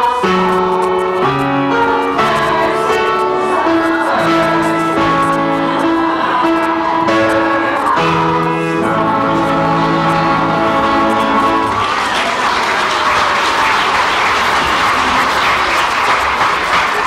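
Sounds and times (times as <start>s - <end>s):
live music held chords: 0.0s - 13.1s
audience applause: 10.4s - 17.0s.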